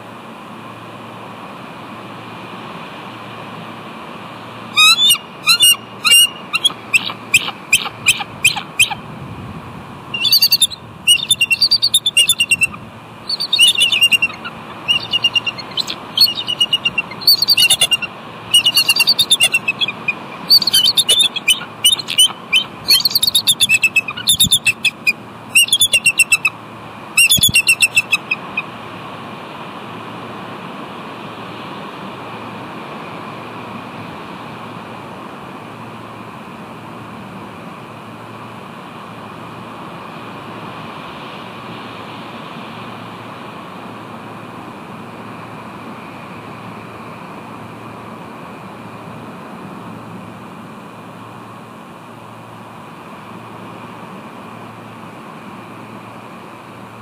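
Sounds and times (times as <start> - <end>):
eagles chittering calls: 4.8 - 9.1, 10.1 - 26.6, 27.2 - 28.7.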